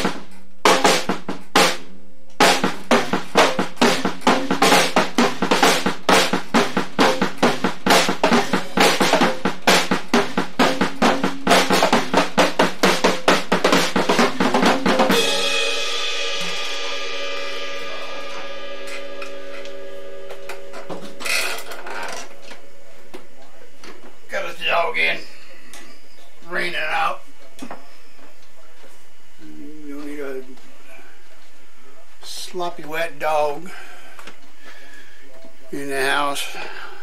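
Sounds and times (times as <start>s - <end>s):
drum kit playing a steady beat: 0.0s - 21.5s
cymbals ringing: 2.5s - 22.9s.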